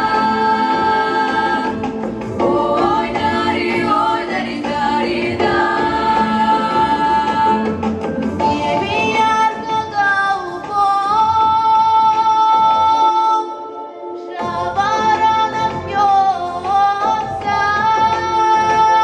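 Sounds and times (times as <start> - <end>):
women's choir singing held notes: 0.0 - 9.1.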